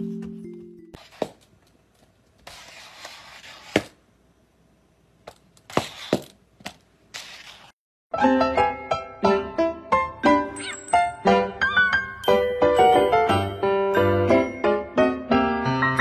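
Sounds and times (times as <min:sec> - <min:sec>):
xylophone-like music: 0:10.5 - 0:14.9.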